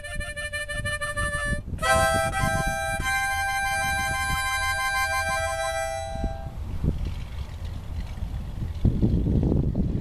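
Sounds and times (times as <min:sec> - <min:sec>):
harmonica holding a chord: 0:00.0 - 0:06.6.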